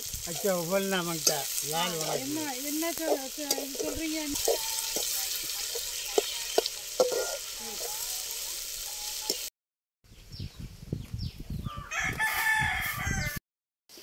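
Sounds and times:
vegetables sizzling in oil: 0.0 - 9.5
rooster crowing: 11.7 - 13.4.

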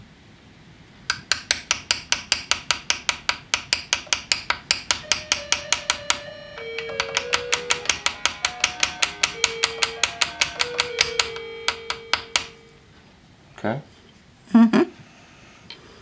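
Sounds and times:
sharp metallic engraving taps: 1.1 - 12.7.

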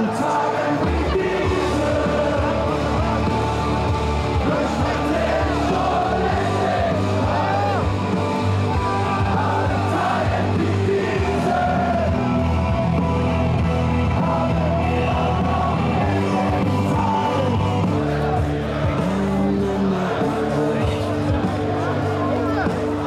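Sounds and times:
people yelling: 0.0 - 12.4
people singing along: 0.0 - 22.2
loud party music: 0.0 - 23.0.

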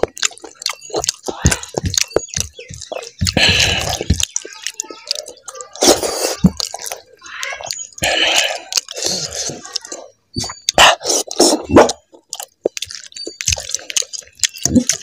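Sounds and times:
wet chewing and lip smacking: 0.0 - 15.0.

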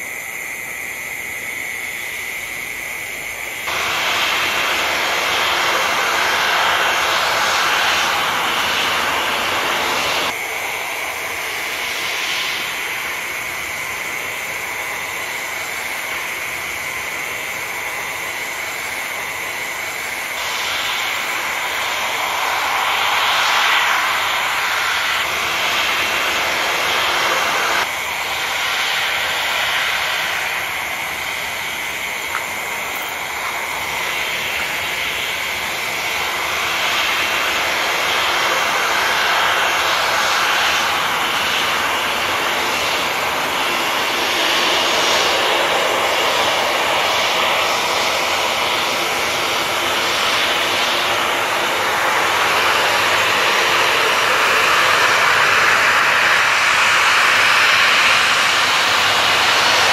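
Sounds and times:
jet engines whining: 0.0 - 59.9.

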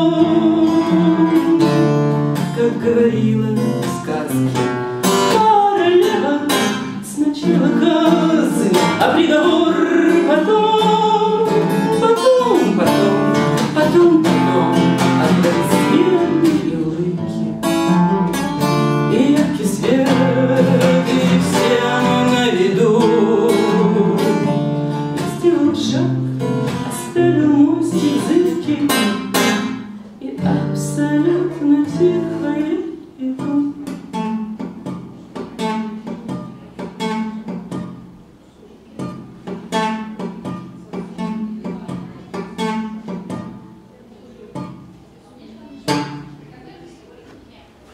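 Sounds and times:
woman singing: 0.0 - 4.4, 5.3 - 17.6, 19.1 - 29.2, 30.2 - 34.4
strummed acoustic guitar: 0.0 - 45.2, 45.8 - 46.5.

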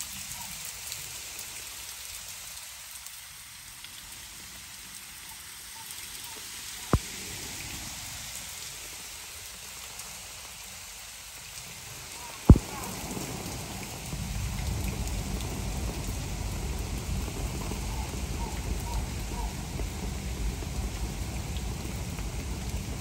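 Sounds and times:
rain on pool and rocks: 0.0 - 23.0
sharp tap: 12.5 - 12.8.

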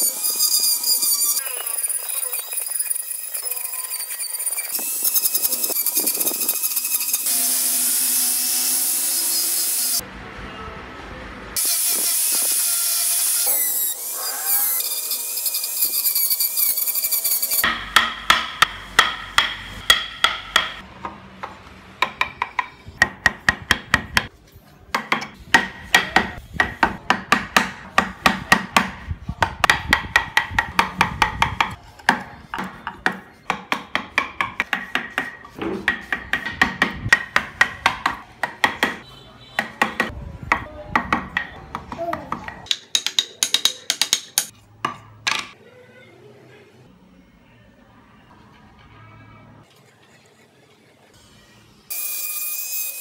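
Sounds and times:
angle grinder cutting wood: 0.0 - 10.0, 11.6 - 17.7
mallet striking chisel: 17.6 - 24.3, 24.9 - 39.0, 39.6 - 45.6.

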